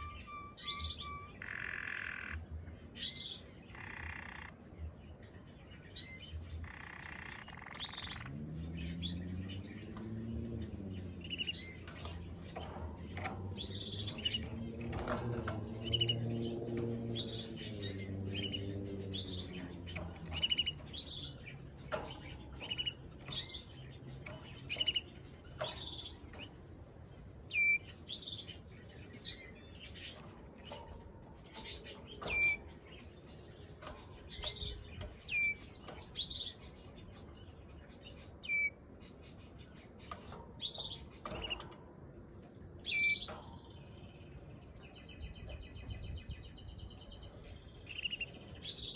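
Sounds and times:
canary chirping and trilling: 0:00.0 - 0:48.9.

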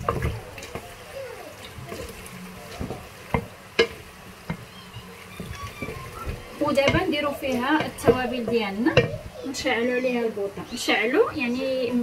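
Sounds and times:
spoon knocking against pot: 0:02.8 - 0:04.7, 0:05.4 - 0:09.3.

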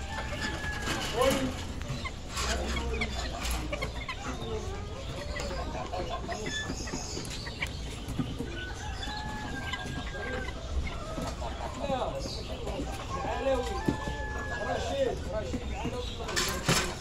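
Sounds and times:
chickens clucking: 0:00.0 - 0:17.0.

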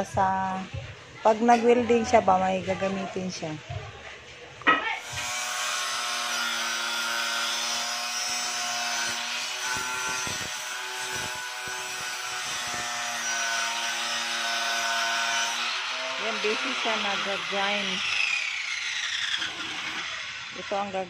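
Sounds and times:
angle grinder grinding steel: 0:04.8 - 0:21.0.

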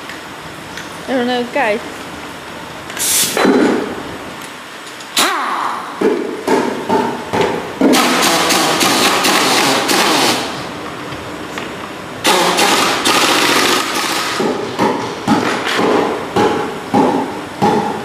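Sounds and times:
pneumatic impact wrench hammering: 0:03.0 - 0:03.9, 0:05.1 - 0:10.6, 0:12.2 - 0:18.0.

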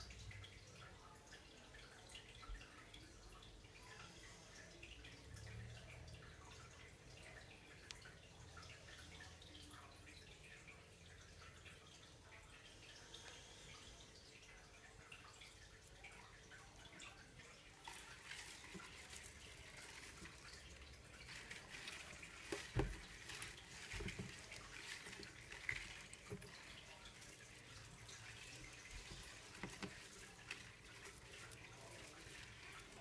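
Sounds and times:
water sloshing and dripping: 0:00.0 - 0:33.0.

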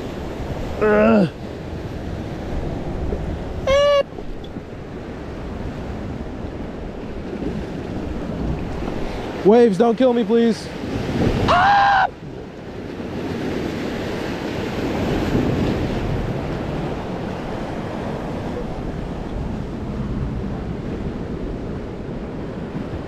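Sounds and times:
wind buffeting microphone: 0:00.0 - 0:09.7, 0:10.4 - 0:23.0
waves breaking on rocks: 0:00.0 - 0:23.0
person crying out: 0:00.8 - 0:01.4, 0:03.6 - 0:04.1, 0:11.5 - 0:12.2.

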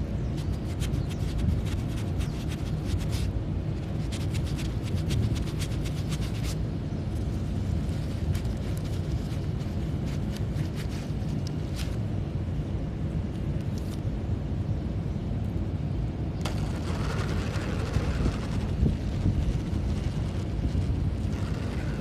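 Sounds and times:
fingers rubbing nylon fabric: 0:00.3 - 0:06.6, 0:07.8 - 0:12.0, 0:16.5 - 0:22.0
low rumble: 0:16.0 - 0:22.0.

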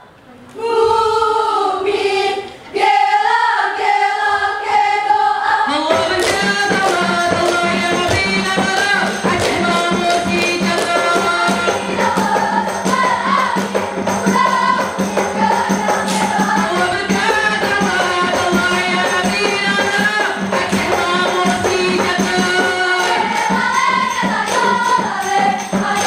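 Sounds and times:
girls singing a chant: 0:00.5 - 0:26.0
fast drum percussion: 0:05.8 - 0:26.0
tambourine-like jingles: 0:06.4 - 0:26.0.

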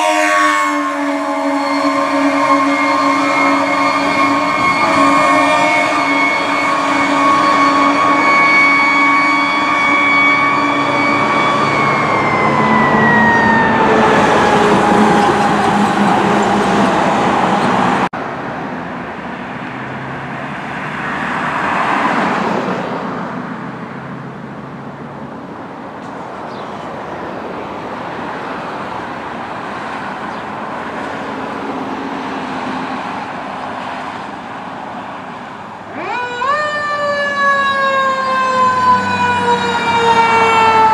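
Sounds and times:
fire engine siren: 0:00.0 - 0:18.1, 0:20.1 - 0:24.3, 0:28.1 - 0:40.9
road traffic: 0:00.0 - 0:40.9
car passing close by: 0:19.2 - 0:24.4.

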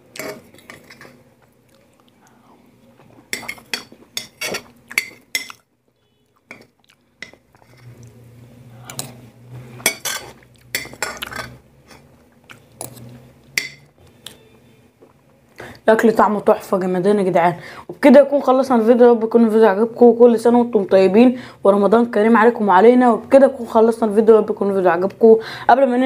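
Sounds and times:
quiet chewing: 0:00.1 - 0:08.2, 0:11.9 - 0:13.2
metal spoon scraping ceramic plate: 0:00.2 - 0:01.2, 0:07.2 - 0:08.0, 0:08.9 - 0:12.1.

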